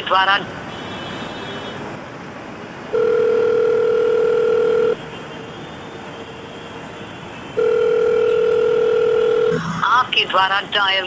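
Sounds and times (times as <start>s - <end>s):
telephone ringback tone: 2.9s - 5.0s, 7.6s - 9.6s.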